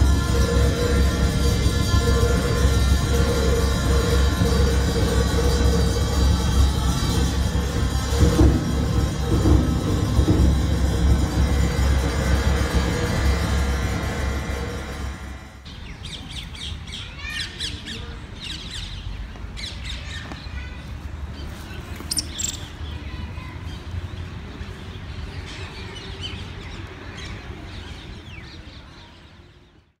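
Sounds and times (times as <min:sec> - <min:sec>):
steady low rumble: 0:00.0 - 0:16.9
birds chirping: 0:15.7 - 0:29.7.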